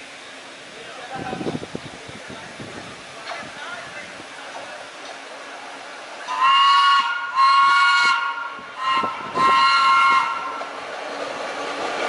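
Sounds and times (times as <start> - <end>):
subway train horn blasts: 6.3 - 10.7.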